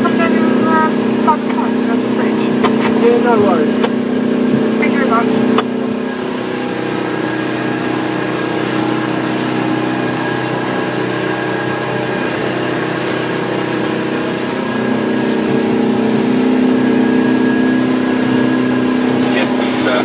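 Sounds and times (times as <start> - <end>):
boat engine running: 0.0 - 20.0.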